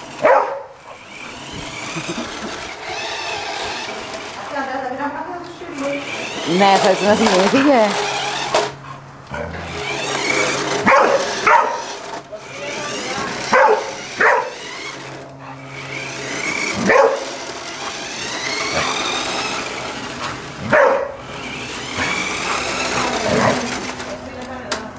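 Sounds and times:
dog barking: 0:00.2 - 0:01.1, 0:10.8 - 0:11.9, 0:13.5 - 0:14.6, 0:16.8 - 0:17.3, 0:20.7 - 0:21.2.

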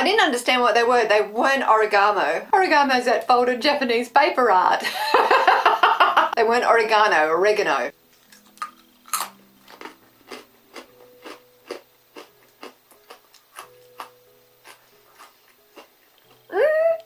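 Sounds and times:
cracker crunching: 0:08.2 - 0:16.4.

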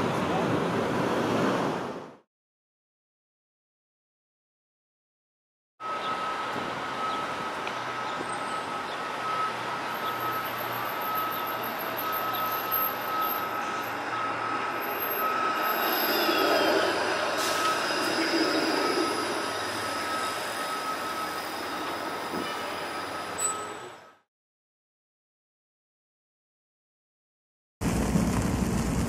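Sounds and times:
streetcar passing on rails: 0:00.0 - 0:02.2, 0:05.8 - 0:24.2
steady high tone: 0:05.8 - 0:24.3
wheel squeal: 0:08.0 - 0:24.1.

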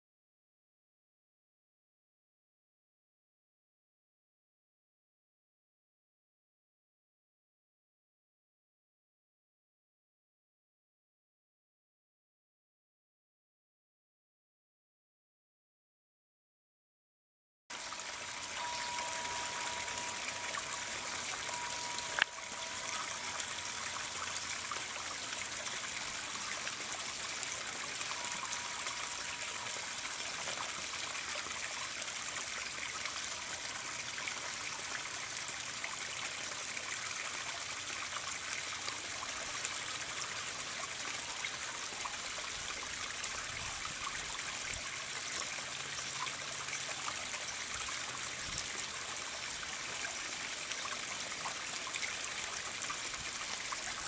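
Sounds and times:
small waterfall splashing: 0:17.7 - 0:54.0.

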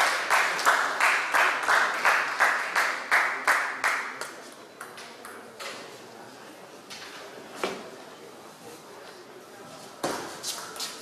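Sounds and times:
crowd clapping in rhythm: 0:00.0 - 0:04.4.

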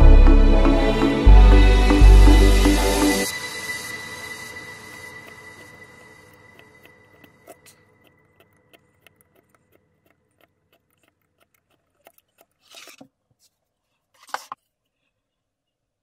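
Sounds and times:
background music: 0:00.0 - 0:07.6
scrape or clatter: 0:11.0 - 0:14.6.

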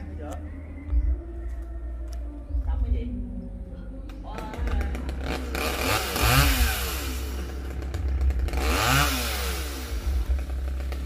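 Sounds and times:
chainsaw engine revving: 0:04.4 - 0:11.0.

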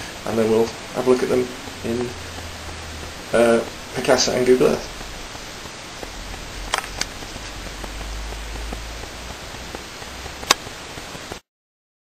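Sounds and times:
low hum: 0:00.0 - 0:11.3
room tone hiss: 0:00.0 - 0:11.5
faint ticks: 0:01.8 - 0:11.4
sharp click: 0:06.7 - 0:07.3, 0:09.6 - 0:10.7.

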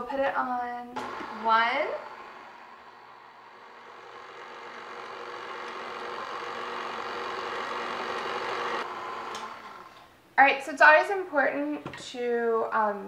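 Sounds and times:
stand mixer motor hum: 0:01.0 - 0:10.1.

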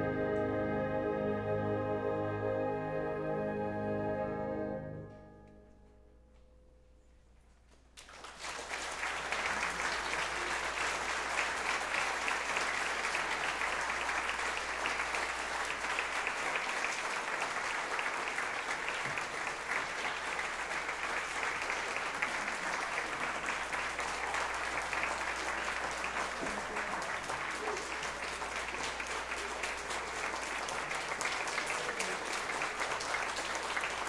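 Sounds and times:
audience applauding: 0:08.0 - 0:34.0.

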